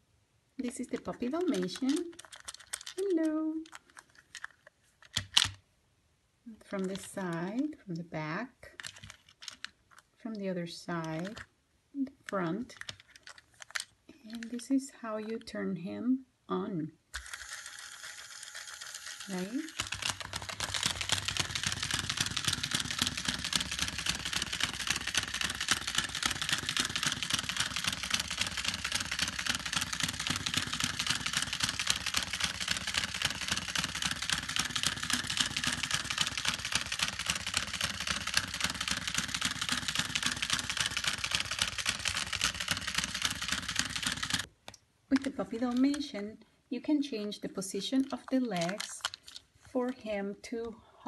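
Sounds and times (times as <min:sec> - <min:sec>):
rapid plastic clicking: 0:00.7 - 0:05.6, 0:08.8 - 0:10.1, 0:18.8 - 0:44.5, 0:48.0 - 0:49.4
toy motor and gears whirring: 0:17.1 - 0:44.5.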